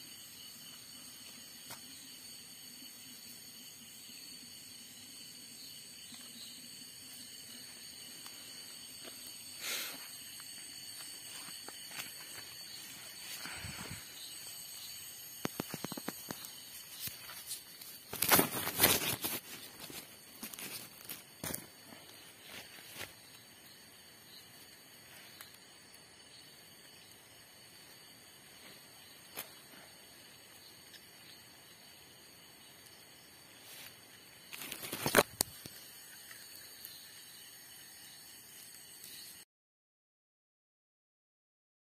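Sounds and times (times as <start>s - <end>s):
night insects chorus: 0.0s - 39.4s
rustling through grass and leaves: 7.2s - 25.8s, 33.2s - 36.9s.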